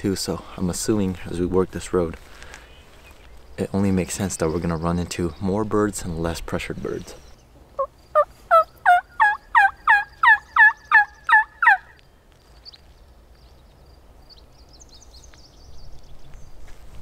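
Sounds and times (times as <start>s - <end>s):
turkey call yelps: 7.8s - 12.0s.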